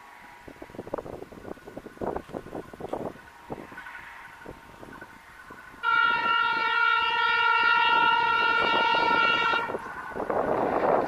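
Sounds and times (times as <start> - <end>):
locomotive air horn blast: 5.8 - 9.9.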